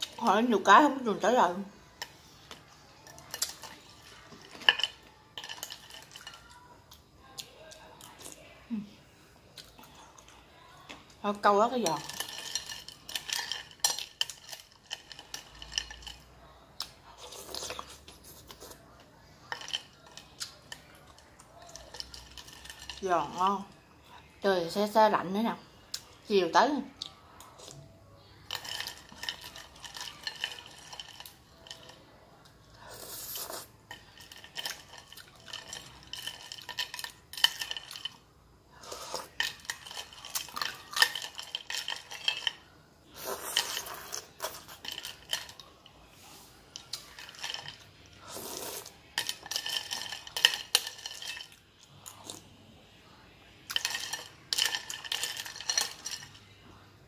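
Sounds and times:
spoon scraping through ice: 2.9s - 6.6s, 11.3s - 16.3s, 17.1s - 23.6s, 28.4s - 32.0s, 32.8s - 52.4s, 53.7s - 56.4s
ice clinking against glass: 3.1s - 6.5s, 11.8s - 16.3s, 19.4s - 21.0s, 28.4s - 32.0s, 33.8s - 38.2s, 39.3s - 45.7s, 46.8s - 47.9s, 49.2s - 51.6s, 53.7s - 56.4s
ice crunching being chewed: 11.9s - 23.0s, 28.5s - 32.0s, 32.8s - 38.2s, 38.8s - 52.5s.

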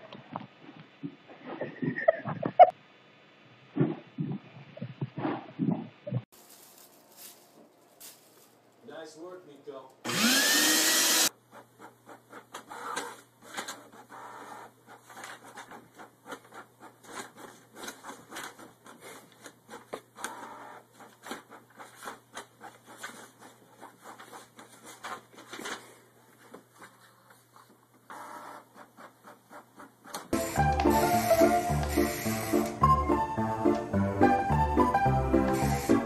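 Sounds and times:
printer whirring: 30.4s - 33.0s.

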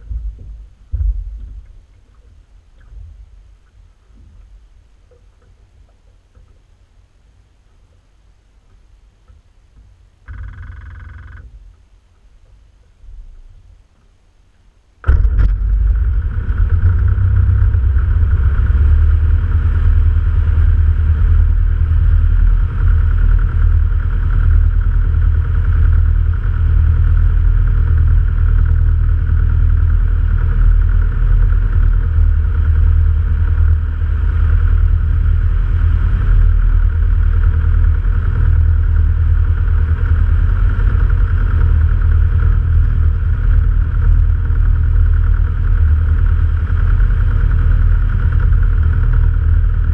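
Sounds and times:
light aircraft engine and propeller: 15.0s - 49.9s.

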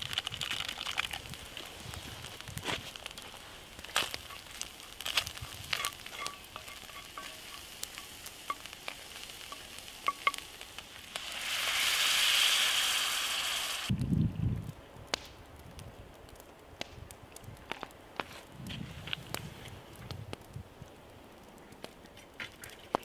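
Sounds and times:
food sizzling in oil: 0.0s - 14.0s
water hissing in hot pan: 0.0s - 14.0s
wooden spatula scraping pan: 5.1s - 8.7s.

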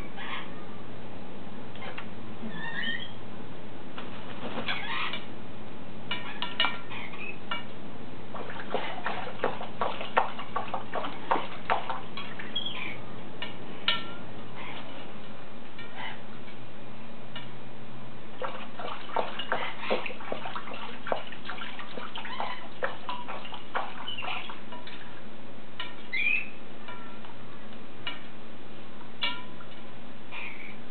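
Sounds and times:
bird chirps: 2.5s - 3.2s, 6.2s - 7.4s, 12.4s - 13.0s, 26.1s - 27.2s, 30.3s - 30.8s
parrot splashing in water: 8.3s - 13.0s, 18.3s - 25.2s.

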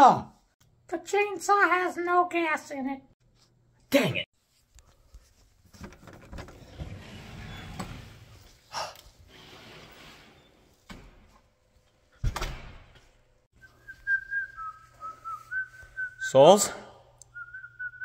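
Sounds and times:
person whistling a tune: 13.6s - 16.2s, 17.3s - 18.0s.

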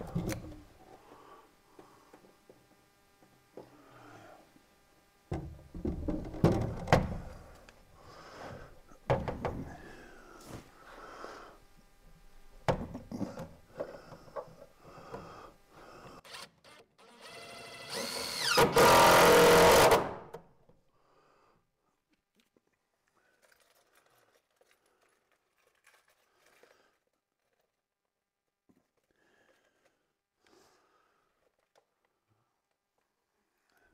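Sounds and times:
cordless drill whining: 16.2s - 20.1s.

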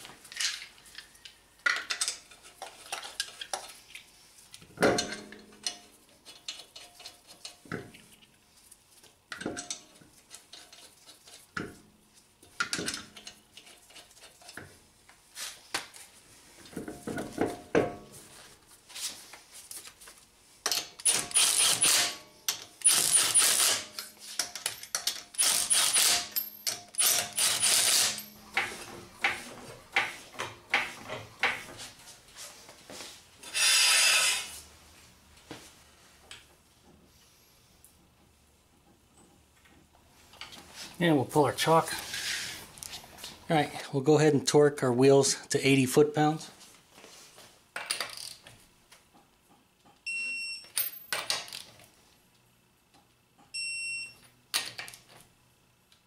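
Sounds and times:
impact wrench bursts: 20.7s - 28.7s, 33.4s - 34.5s.

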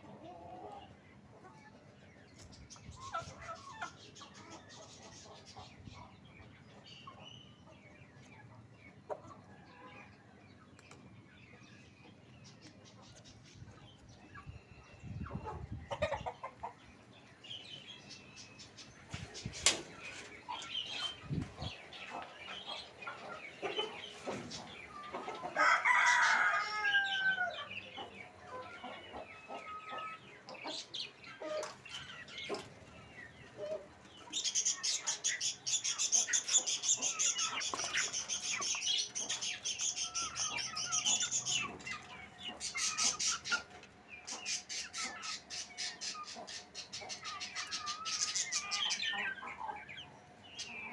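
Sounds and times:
chickens clucking: 0.0s - 50.9s
budgerigars twittering: 11.5s - 50.9s
rooster crowing: 25.5s - 27.7s.

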